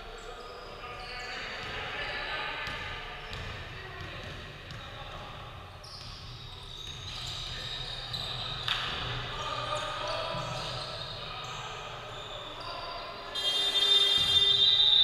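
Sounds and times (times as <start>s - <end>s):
echoing voices: 7.5s - 15.0s.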